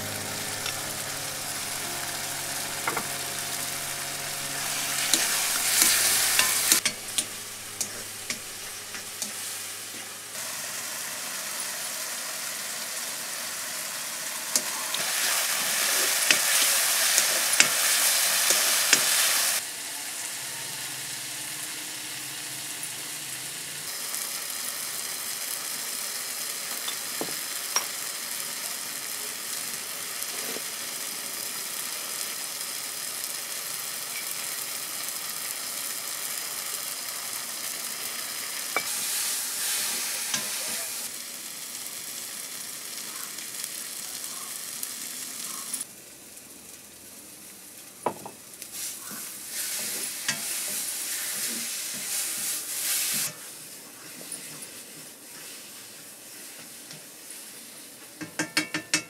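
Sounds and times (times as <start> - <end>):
metal spatula scraping pan: 0.0 - 9.3
food sizzling in a pan: 0.0 - 59.0.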